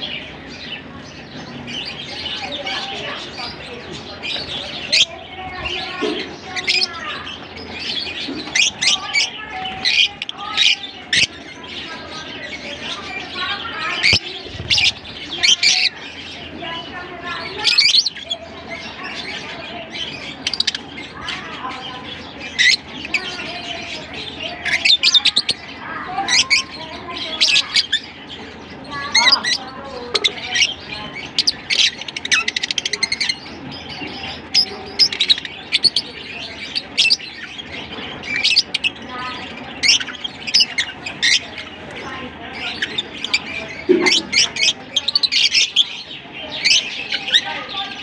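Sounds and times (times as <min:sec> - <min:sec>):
birds chirping and squawking: 0:00.0 - 0:48.0.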